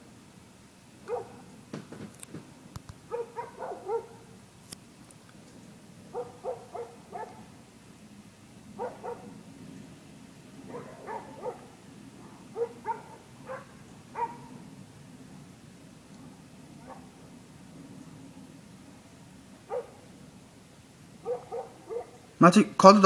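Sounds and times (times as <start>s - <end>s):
dogs barking: 1.0s - 1.6s, 3.0s - 4.4s, 6.1s - 7.6s, 8.7s - 9.4s, 10.6s - 14.7s, 16.7s - 17.2s, 19.6s - 20.2s, 21.2s - 22.3s.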